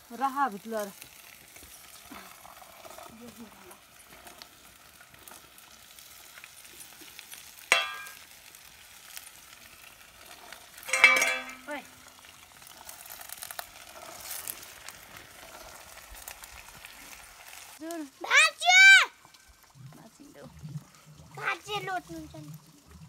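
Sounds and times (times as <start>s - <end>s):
peas sizzling in a pot: 0.0s - 23.0s
spoon and plate clatter: 7.7s - 8.2s, 10.9s - 11.8s
spoon clinking against pot: 7.7s - 8.2s, 10.9s - 11.7s.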